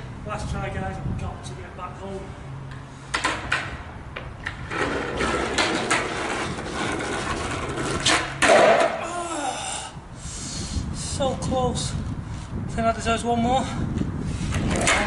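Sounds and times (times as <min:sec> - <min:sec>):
skateboard clacks and shoe scuffs: 0:03.1 - 0:09.0
skateboard wheels rolling on asphalt: 0:03.1 - 0:09.0, 0:13.9 - 0:15.0.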